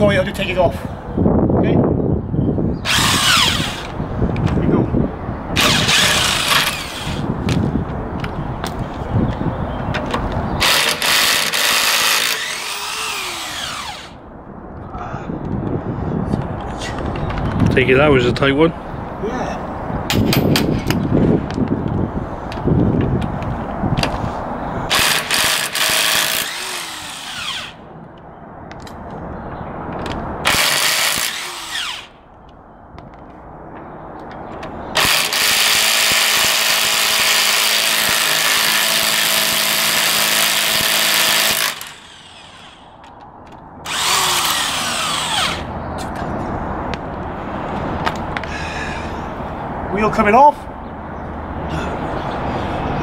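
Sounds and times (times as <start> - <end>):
cordless power tool spinning bolts: 2.8 - 4.0, 5.6 - 7.2, 10.6 - 14.2, 24.9 - 27.8, 30.5 - 32.1, 35.0 - 42.9, 43.9 - 45.7.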